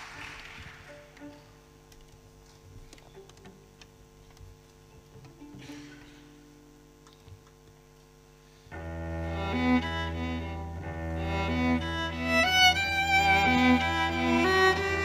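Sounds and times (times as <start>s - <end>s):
held low cello note: 8.7s - 15.0s
string quartet playing: 8.7s - 15.0s.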